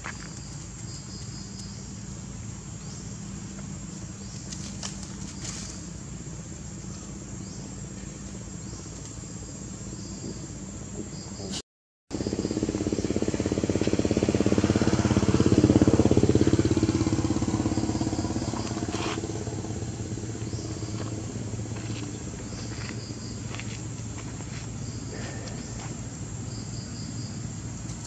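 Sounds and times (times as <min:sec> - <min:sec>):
vehicle engine passing by: 0:12.1 - 0:28.0.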